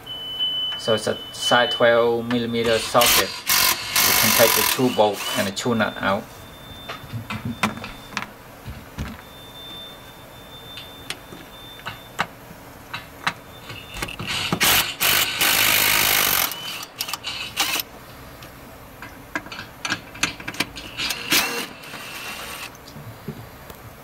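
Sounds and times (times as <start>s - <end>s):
ratchet wrench clicking: 2.8s - 5.4s, 14.3s - 17.9s.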